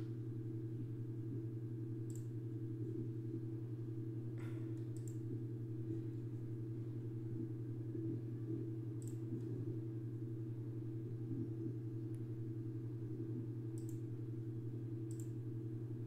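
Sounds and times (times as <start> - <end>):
low electrical hum: 0.0 - 16.0
computer mouse clicks: 2.1 - 2.3, 4.8 - 5.2, 9.0 - 9.2, 13.8 - 14.1, 15.1 - 15.4.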